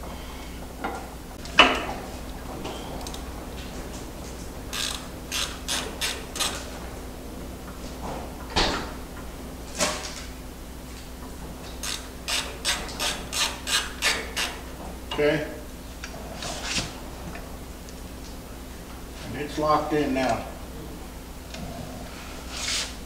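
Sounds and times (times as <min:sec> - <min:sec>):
ratchet wrench clicking: 0:04.7 - 0:06.6, 0:11.8 - 0:14.6.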